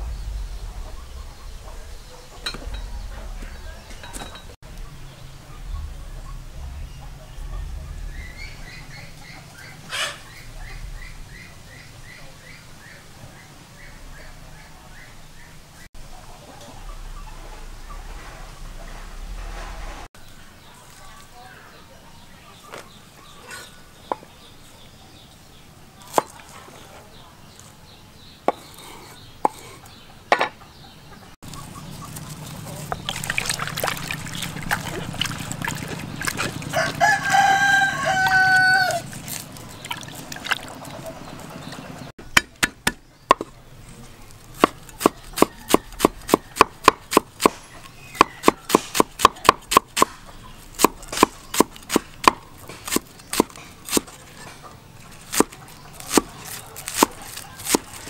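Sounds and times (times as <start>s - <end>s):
water splashing in a basin: 32.4s - 37.0s, 39.0s - 42.0s
rooster crowing: 36.5s - 39.1s, 45.2s - 46.6s
cleaver chopping on wooden board: 42.3s - 43.5s, 44.6s - 50.2s, 50.8s - 54.1s.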